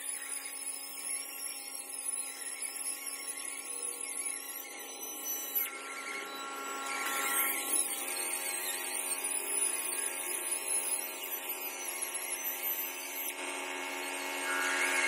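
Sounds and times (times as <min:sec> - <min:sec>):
electric stone polisher whining: 0:06.7 - 0:15.0.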